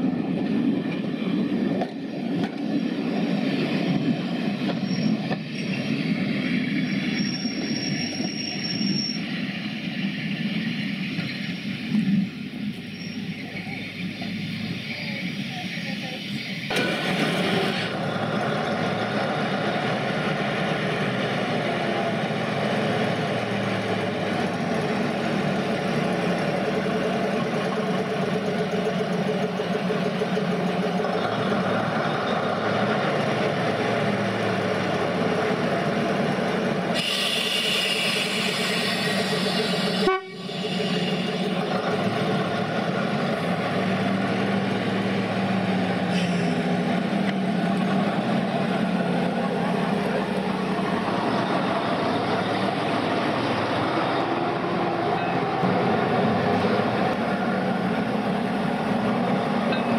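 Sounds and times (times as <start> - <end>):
diesel locomotive engine running: 0.0 - 59.9
hiss: 36.9 - 41.5, 46.1 - 46.7.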